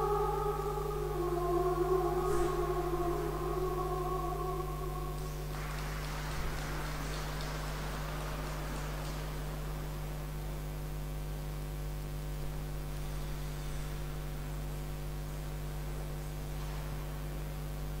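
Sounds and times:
electrical mains hum: 0.0s - 18.0s.

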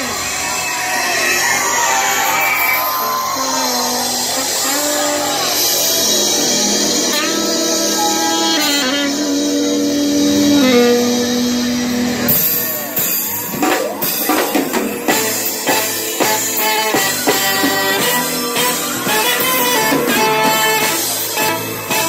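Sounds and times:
live band playing: 0.0s - 22.0s
drums beating: 9.5s - 22.0s.

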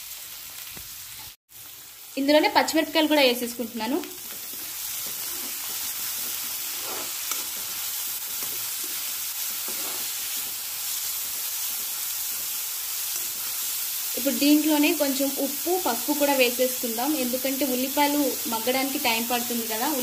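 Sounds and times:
food sizzling in hot oil: 0.0s - 20.0s
metal spatula scraping pan: 9.6s - 10.2s.

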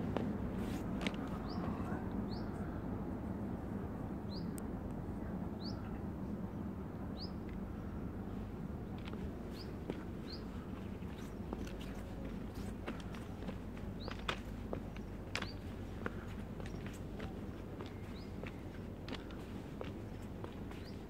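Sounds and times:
faint footsteps on gravel: 0.0s - 1.8s, 9.0s - 21.0s.

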